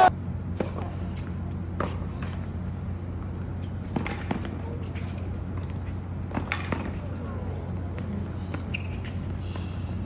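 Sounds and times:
steady low hum: 0:00.0 - 0:10.0
tennis ball struck by racket: 0:03.9 - 0:04.6, 0:06.3 - 0:07.0.

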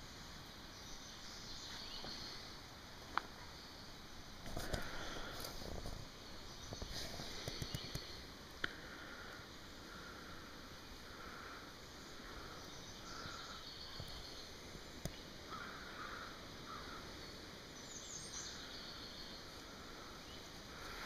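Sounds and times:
faint outdoor background noise: 0:00.0 - 0:21.0.

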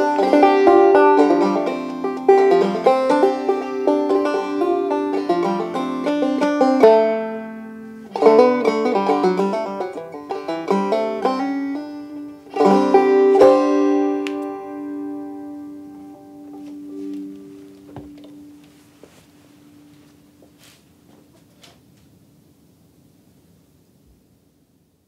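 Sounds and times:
banjo playing: 0:00.0 - 0:18.9.

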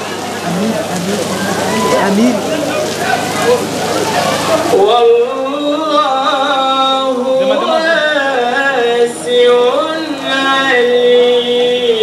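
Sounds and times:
man reciting melodically: 0:00.4 - 0:02.6, 0:04.7 - 0:12.0.

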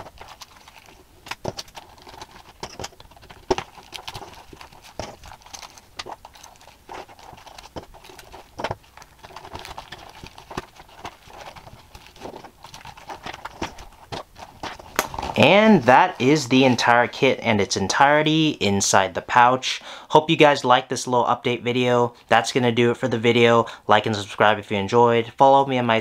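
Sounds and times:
small items clicking and tapping: 0:00.0 - 0:15.4
fabric pouch rustling: 0:00.0 - 0:16.5.

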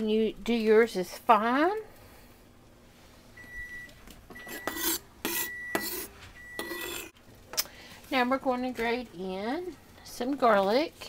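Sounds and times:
garlic scraping on metal grater: 0:04.5 - 0:07.1.

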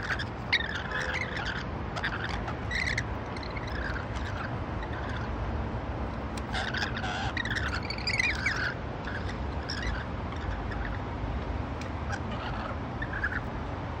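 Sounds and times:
lorikeet chirps and calls: 0:00.0 - 0:05.4, 0:06.4 - 0:11.1, 0:11.8 - 0:13.5.

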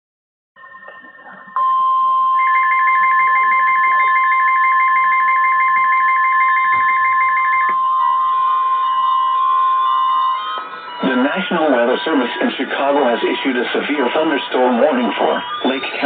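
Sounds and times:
pulsing two-note beeping: 0:00.6 - 0:12.4
steady high alarm tone: 0:00.6 - 0:16.0.

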